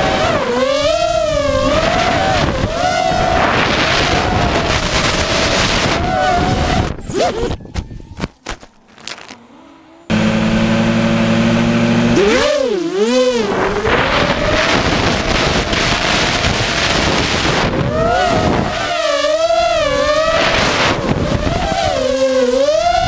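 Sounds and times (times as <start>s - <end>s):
drone motors humming and whining: 0.0s - 23.0s
knocks and rustles in grass: 8.2s - 9.4s.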